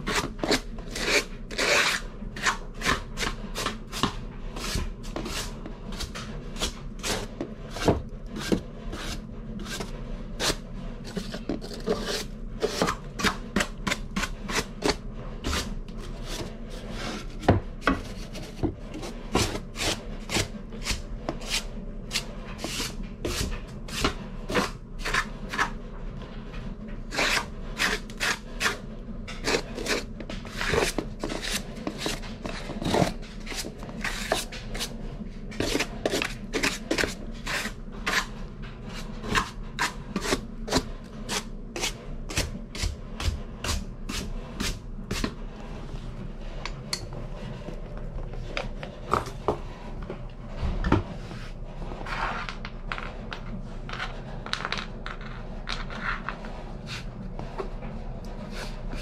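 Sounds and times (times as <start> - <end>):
hand tool scraping wood: 0.0 - 25.7, 27.1 - 45.4.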